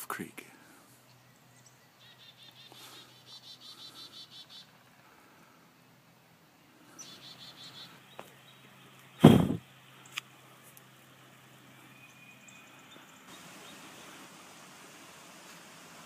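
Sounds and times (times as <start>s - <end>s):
loud short thump: 9.2s - 9.6s.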